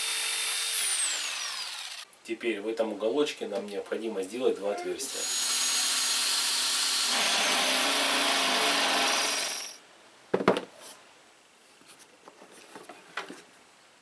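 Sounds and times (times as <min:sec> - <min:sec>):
drill press boring through steel: 0:00.0 - 0:02.0, 0:05.1 - 0:09.8.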